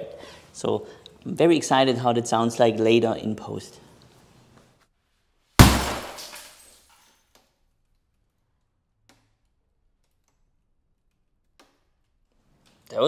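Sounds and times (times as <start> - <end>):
sledgehammer smashing television: 5.6 - 6.7
debris rattling: 5.6 - 6.9.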